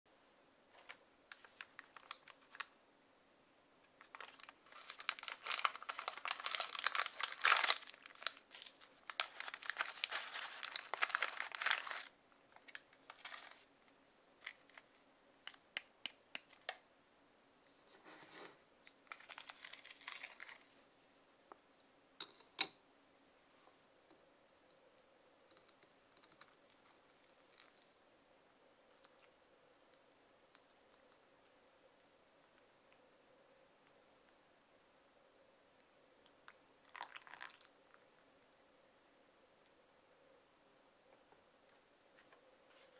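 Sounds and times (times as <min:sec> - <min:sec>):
plastic packet crinkling: 0:00.8 - 0:02.7, 0:04.0 - 0:13.7, 0:19.0 - 0:20.8.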